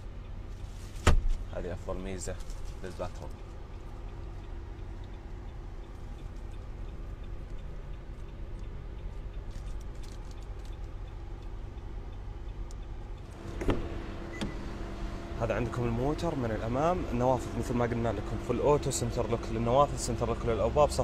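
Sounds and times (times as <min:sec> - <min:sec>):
low hum of parked vehicle: 0:00.0 - 0:21.0
faint ticks: 0:02.2 - 0:13.4
car door handle clunk: 0:13.5 - 0:14.6.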